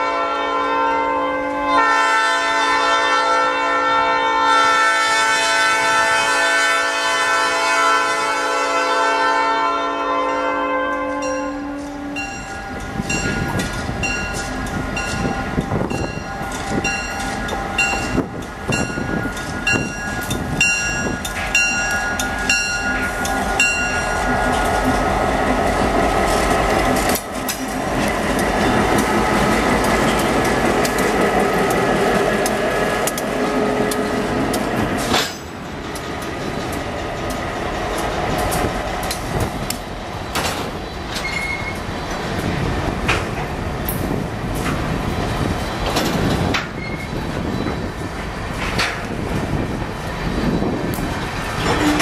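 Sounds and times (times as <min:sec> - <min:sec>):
diesel locomotive engine: 0:00.0 - 0:52.0
wheels clicking over rail joints: 0:11.3 - 0:52.0
short high squeaks: 0:41.1 - 0:41.9, 0:46.8 - 0:47.8.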